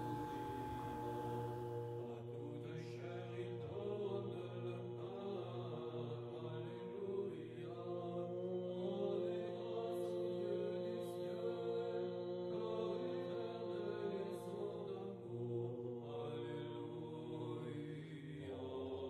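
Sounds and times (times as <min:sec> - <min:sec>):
low drone: 0:00.0 - 0:02.2
vocal chant on held notes: 0:00.0 - 0:19.0.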